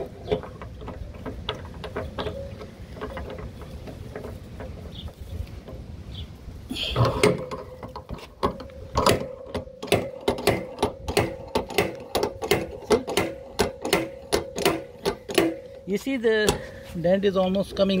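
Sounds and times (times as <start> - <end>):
sharp metallic clicks: 7.0 - 16.6.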